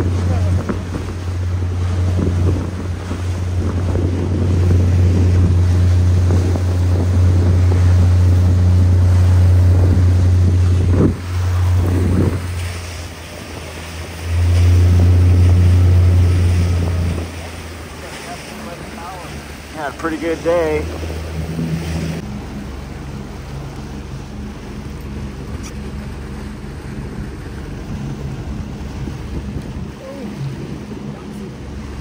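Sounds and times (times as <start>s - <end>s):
boat motor running: 0.0s - 32.0s
hull moving through water: 0.0s - 32.0s
wind buffeting microphone: 0.0s - 32.0s.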